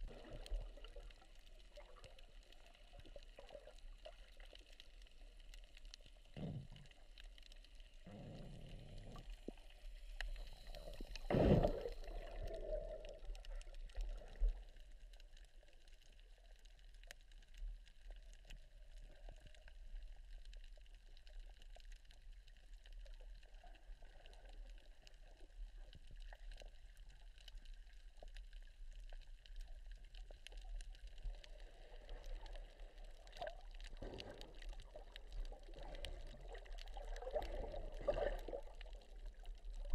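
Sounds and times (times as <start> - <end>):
muffled underwater water noise: 0.0 - 39.9
water gurgling: 0.0 - 39.9.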